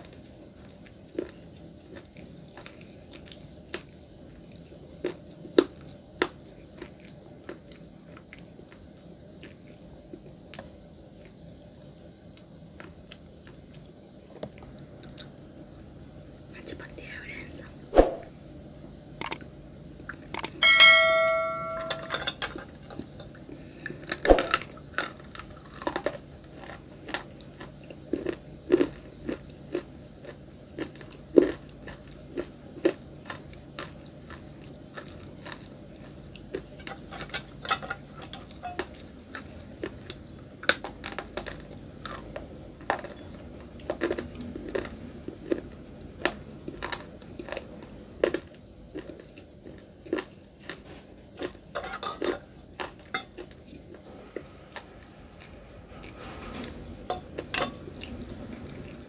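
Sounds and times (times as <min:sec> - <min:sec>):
crunching and chewing clay: 0:00.0 - 0:16.4, 0:19.2 - 0:20.6, 0:22.5 - 0:59.0
metal bowl ringing: 0:20.6 - 0:22.4.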